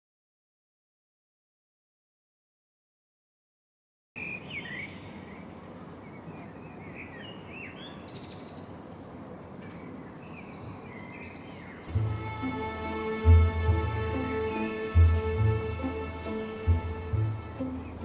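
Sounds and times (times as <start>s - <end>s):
small birds chirping: 4.2s - 12.0s
low background noise: 4.2s - 18.0s
bird trill: 15.4s - 18.0s.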